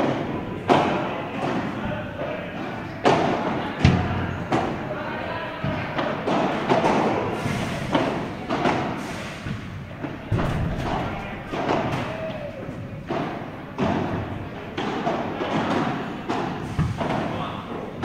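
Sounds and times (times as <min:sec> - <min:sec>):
padel racket hitting ball: 0:03.0 - 0:04.9, 0:05.6 - 0:07.2, 0:07.9 - 0:17.5
ball bouncing: 0:09.5 - 0:15.7.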